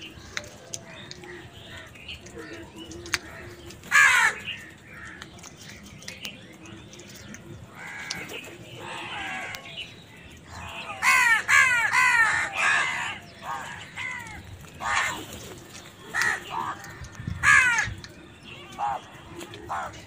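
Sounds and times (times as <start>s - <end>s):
crows cawing: 3.9s - 5.2s, 7.8s - 9.7s, 10.5s - 15.4s, 16.1s - 18.0s, 19.7s - 20.0s.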